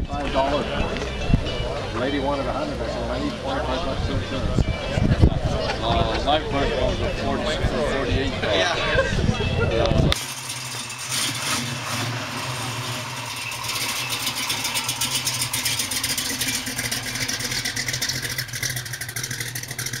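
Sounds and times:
car engine running: 10.2s - 20.0s.

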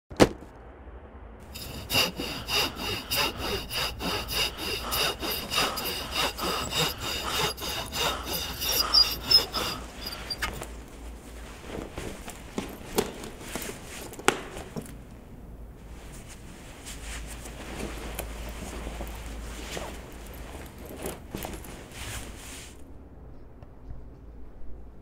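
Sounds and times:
rhythmic rasping strokes: 1.5s - 12.8s
soft rustling: 1.5s - 23.0s.

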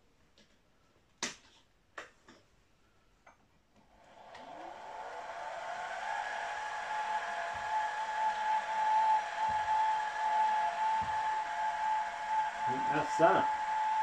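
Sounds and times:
spindle motor whine: 4.0s - 14.0s.

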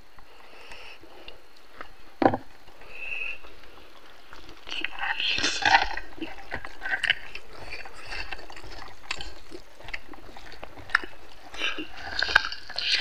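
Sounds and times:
chewing mouth sounds: 0.2s - 13.0s
fingers kneading rice: 2.7s - 13.0s.

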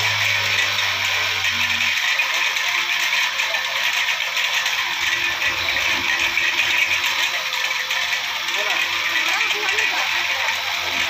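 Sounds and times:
brush cutter engine running: 0.0s - 11.0s
tiller tines rattling through soil: 0.0s - 11.0s.

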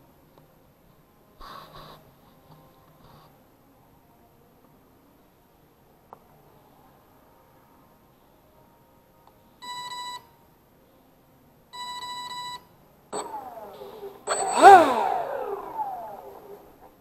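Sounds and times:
motor and propeller whine: 13.2s - 16.9s.

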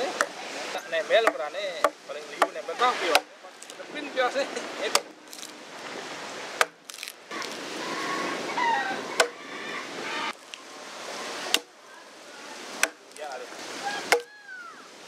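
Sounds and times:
blade chopping into log: 6.6s - 7.1s.

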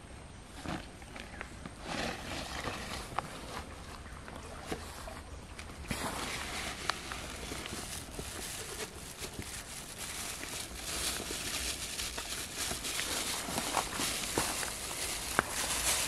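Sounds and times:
plastic bag rustling: 1.8s - 16.0s
outdoor hiss: 4.7s - 16.0s.

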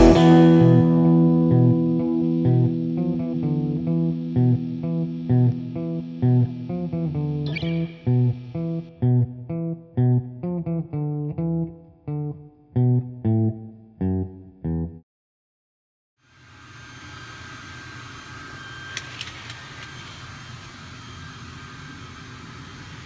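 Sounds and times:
instrumental music with guitar and bass: 0.0s - 15.0s.

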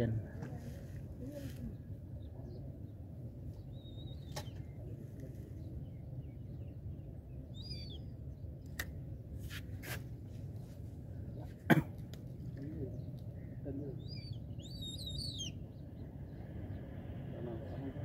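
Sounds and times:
low outdoor rumble: 0.0s - 18.0s
bird chirping: 3.6s - 4.8s, 5.8s - 8.5s, 12.8s - 16.8s.

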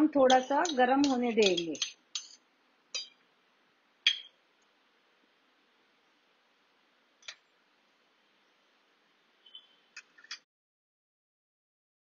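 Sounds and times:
metal spoon clinking on a pot: 0.2s - 2.4s, 3.0s - 3.2s, 4.1s - 4.3s.

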